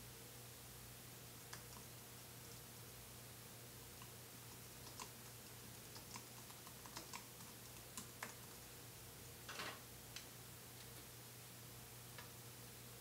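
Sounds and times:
typing on computer keyboard: 0:04.6 - 0:08.6.

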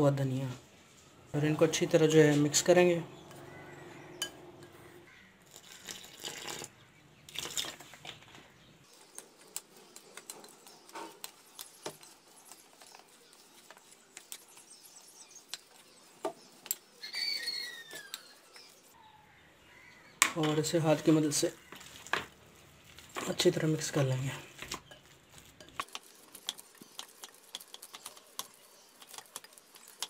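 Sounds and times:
bird chirping: 0:01.0 - 0:22.0.

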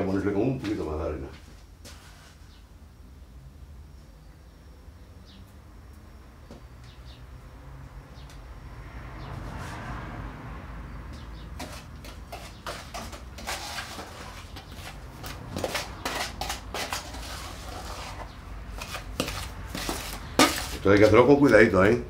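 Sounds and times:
trowel scraping in plastic tub: 0:11.6 - 0:21.3.

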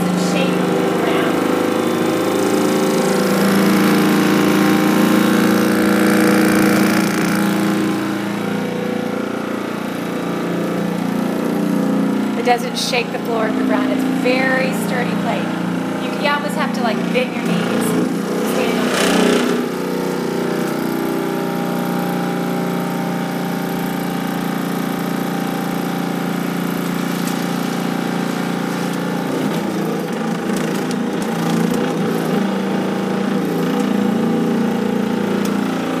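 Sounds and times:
vibration machine motor humming: 0:00.0 - 0:36.0.

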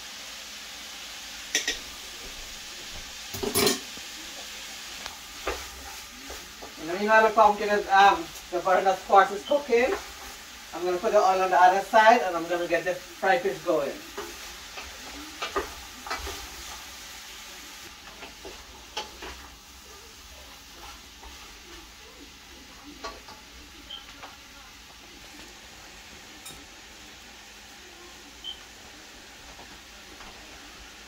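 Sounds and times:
faint sizzle: 0:00.0 - 0:31.0
dishes clinking: 0:01.5 - 0:02.4, 0:03.3 - 0:03.9, 0:26.3 - 0:26.7.

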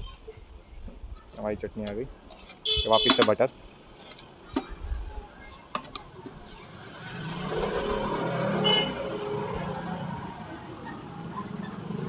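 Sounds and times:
vehicle passing by: 0:06.6 - 0:12.0.

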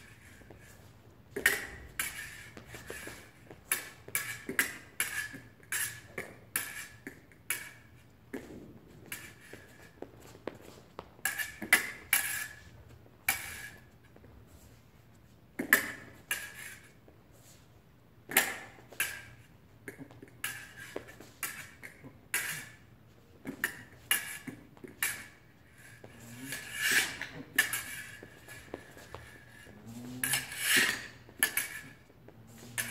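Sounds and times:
fencing blades clinking: 0:26.4 - 0:32.9.

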